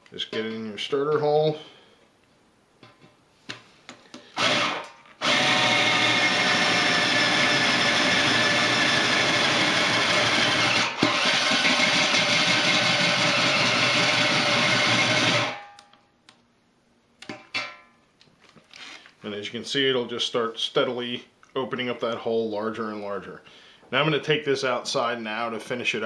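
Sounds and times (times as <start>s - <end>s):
cordless drill cutting metal: 4.4s - 15.8s.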